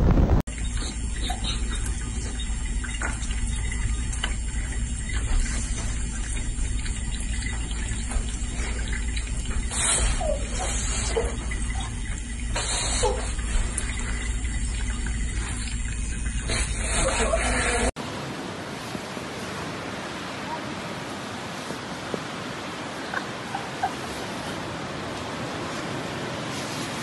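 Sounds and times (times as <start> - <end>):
faucet running into sink: 0.5 - 17.9.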